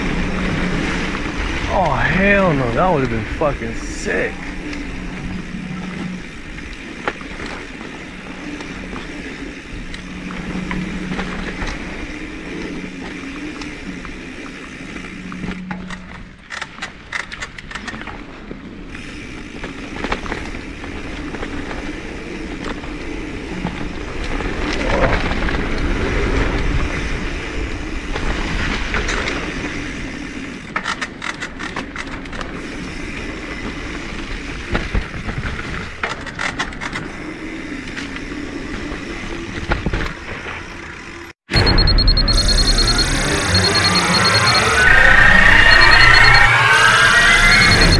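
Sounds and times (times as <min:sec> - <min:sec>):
bike tyre noise on dirt: 0:00.0 - 0:47.9
bike clicks and rattles: 0:04.4 - 0:41.4.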